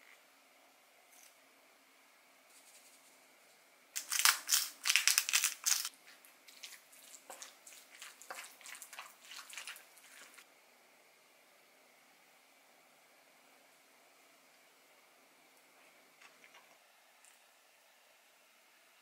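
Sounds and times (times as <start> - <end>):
spatula mashing potatoes in bowl: 5.6 - 10.4.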